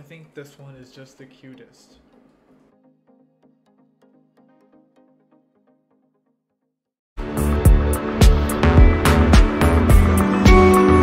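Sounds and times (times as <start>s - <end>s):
faint background music: 0.0s - 3.1s.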